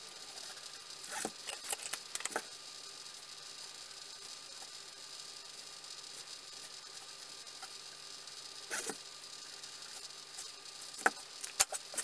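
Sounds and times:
faint steady hiss: 0.0s - 12.0s
pen scratching on wood: 8.7s - 9.0s.

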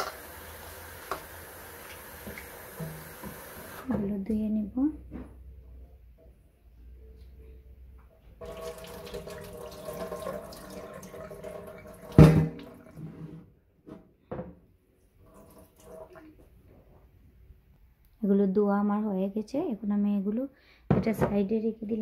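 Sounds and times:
tap water running into bowl: 0.0s - 3.8s, 8.4s - 12.9s, 15.2s - 16.3s.

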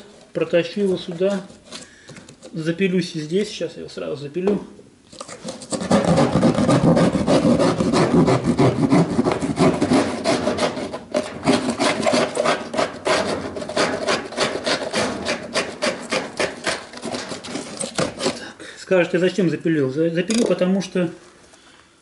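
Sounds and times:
hand saw rasping through drywall: 5.2s - 18.5s.

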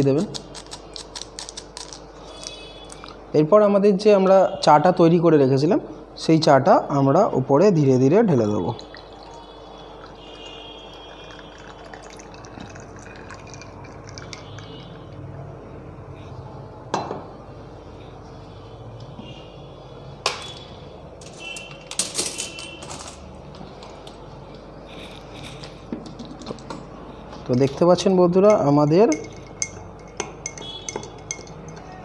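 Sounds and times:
tea trickling into glass: 8.5s - 15.2s
ringing clinks: 28.5s - 32.0s.

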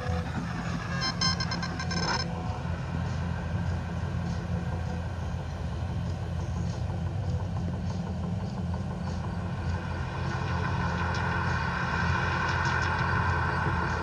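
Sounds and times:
deep low drone: 0.0s - 14.0s.

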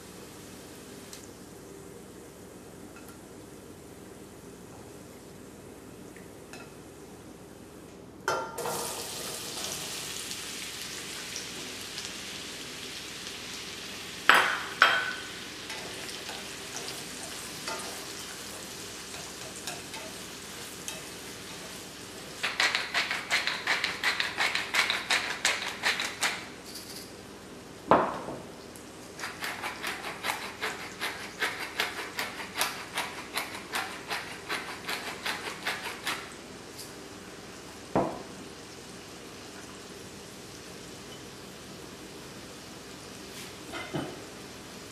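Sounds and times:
onions sizzling in a pan: 8.6s - 22.6s, 36.3s - 44.9s.

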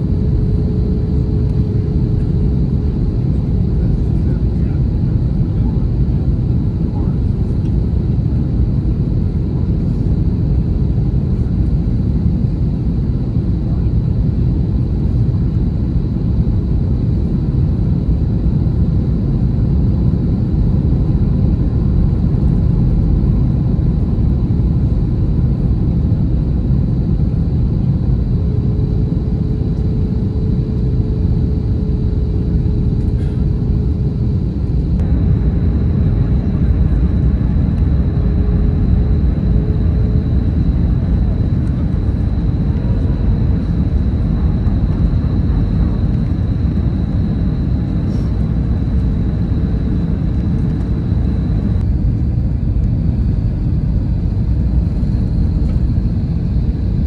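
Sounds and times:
jet airliner cabin rumble: 0.0s - 57.0s.

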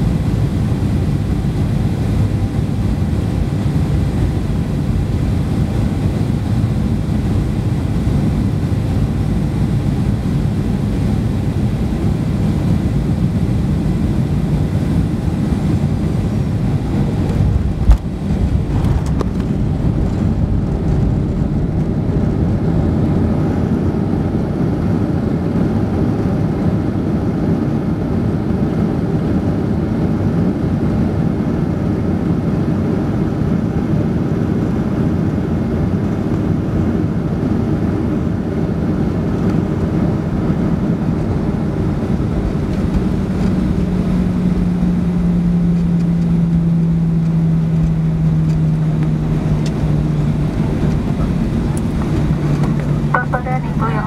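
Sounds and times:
tyres and jet engines rumbling: 0.0s - 24.7s, 35.5s - 54.0s.

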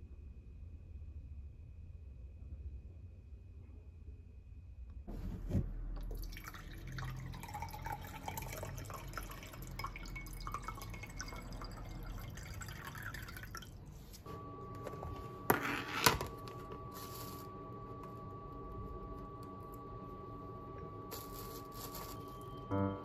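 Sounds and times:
water pouring into a glass: 6.0s - 13.8s.

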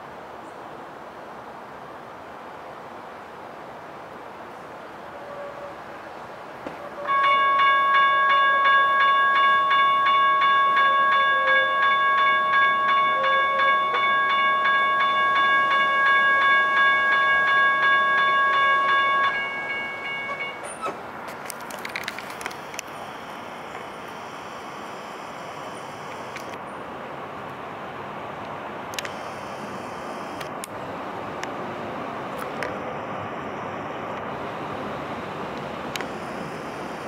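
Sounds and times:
railroad crossing bells ringing: 6.8s - 20.9s, 36.0s - 37.0s.

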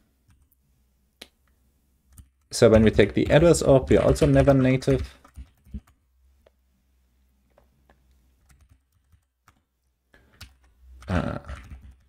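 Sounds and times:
keyboard typing: 2.1s - 6.0s, 8.4s - 12.0s.

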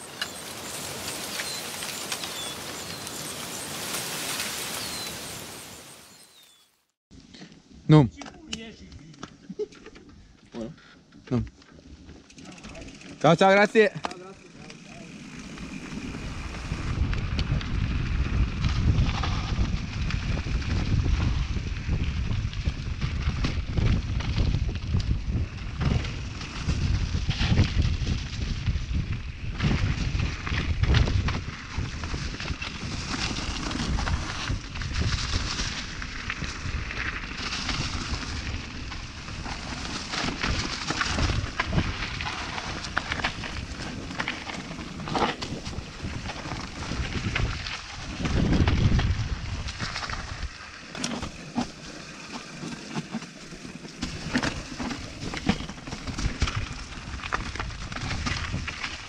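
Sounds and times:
bike tyres rumbling on dirt: 0.0s - 6.6s, 11.1s - 59.0s
wind buffeting microphone: 15.5s - 39.6s, 40.4s - 50.6s.

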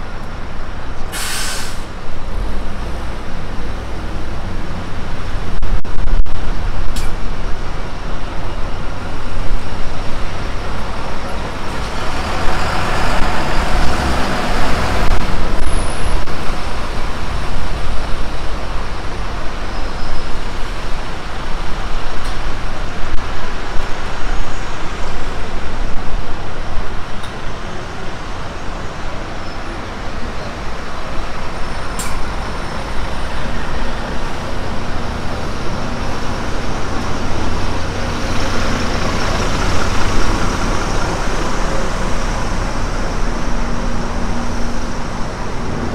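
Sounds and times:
road traffic with buses: 0.0s - 45.9s
wind buffeting microphone: 2.1s - 29.4s.

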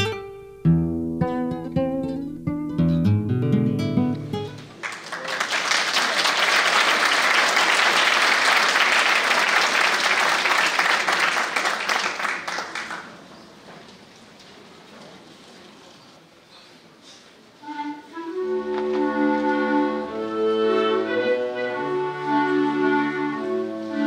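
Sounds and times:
plucked-string music: 0.0s - 4.6s
audience applauding: 4.6s - 13.4s.

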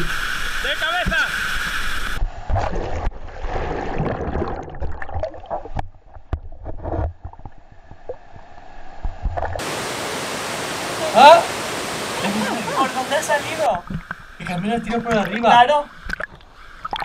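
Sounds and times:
water splashing and gurgling: 0.0s - 17.0s
waterfall rushing: 9.6s - 13.7s.

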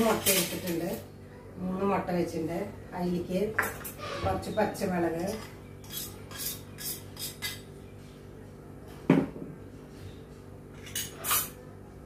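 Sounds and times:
fork clinking against bowls: 5.2s - 7.7s.

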